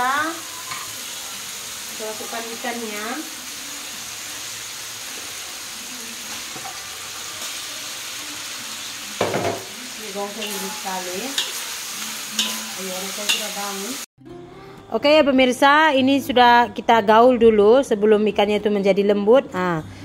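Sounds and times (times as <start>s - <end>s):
spice paste sizzling in oil: 0.0s - 14.1s
metal spatula stirring: 10.4s - 13.6s.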